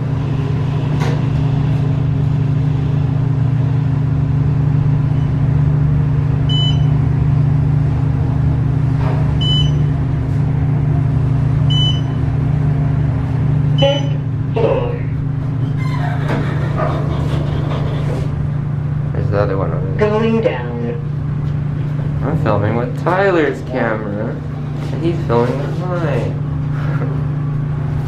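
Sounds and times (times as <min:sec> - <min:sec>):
elevator low hum: 0:00.0 - 0:28.0.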